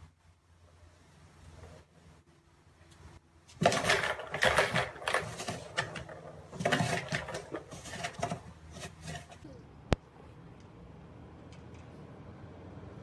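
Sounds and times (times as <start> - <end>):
plastic balls rattling in track: 3.5 - 9.4.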